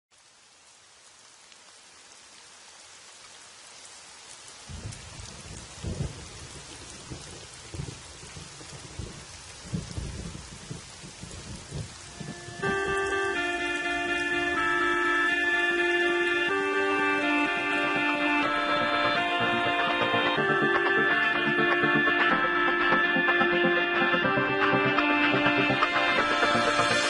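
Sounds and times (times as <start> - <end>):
steady rain: 0.1 - 27.0
rolling thunder: 4.7 - 13.2.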